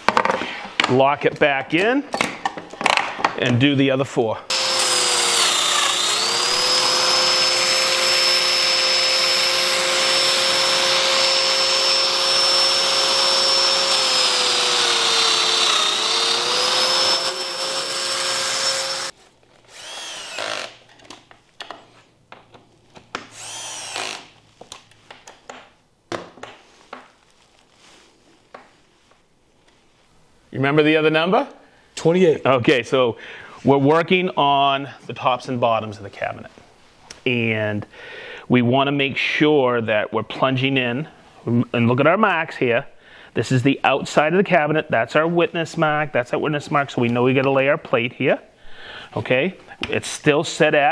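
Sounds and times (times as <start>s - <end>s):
knocks and handling sounds: 0.0s - 3.6s, 20.8s - 23.3s, 24.4s - 30.0s
joiner motor cutting: 4.5s - 19.1s, 19.7s - 20.8s, 23.3s - 24.3s.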